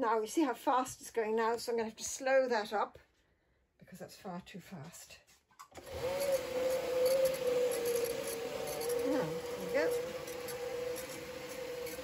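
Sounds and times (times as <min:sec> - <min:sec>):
drum carder motor whining: 0:05.8 - 0:12.0.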